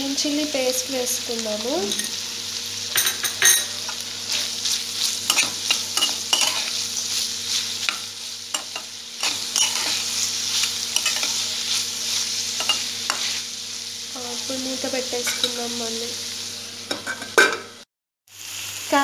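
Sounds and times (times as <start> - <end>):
vegetables sizzling in oil: 0.0 - 19.0
metal spatula scraping pan: 4.3 - 6.8, 7.5 - 13.4.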